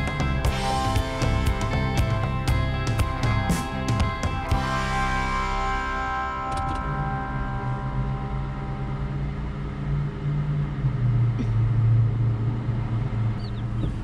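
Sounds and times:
guitar music: 0.0s - 10.2s
car engine humming: 0.0s - 14.0s.

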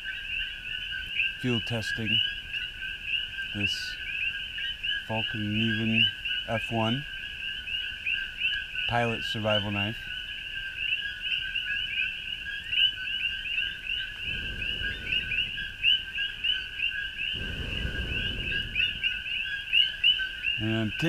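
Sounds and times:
frogs chirping: 0.0s - 21.0s
low rustling: 13.6s - 20.6s.

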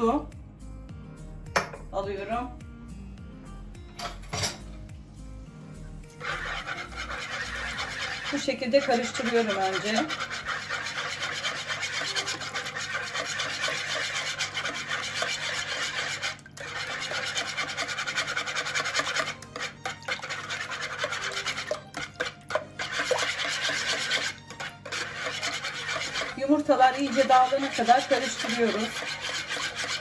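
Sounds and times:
wire whisk beating eggs: 6.2s - 30.0s.

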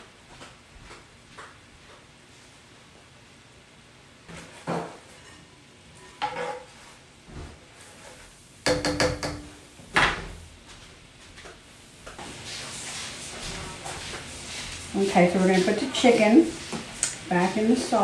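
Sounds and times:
utensil knocking against pan: 8.6s - 9.6s
utensil stirring and scraping sauce: 12.0s - 18.0s.

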